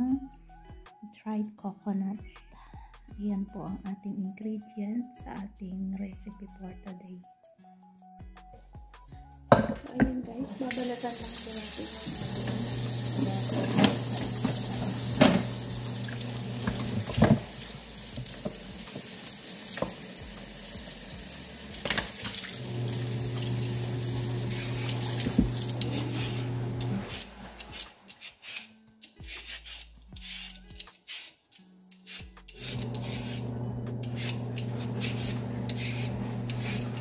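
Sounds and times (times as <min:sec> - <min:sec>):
knocks on metal pot: 0:09.5 - 0:10.2
tap water running into sink: 0:10.5 - 0:27.0
knife peeling vegetable: 0:24.4 - 0:37.0.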